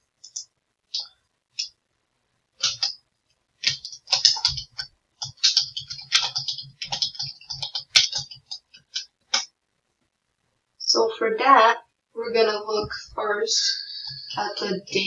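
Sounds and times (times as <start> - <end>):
typing on computer keyboard: 2.6 - 3.0, 3.6 - 9.4.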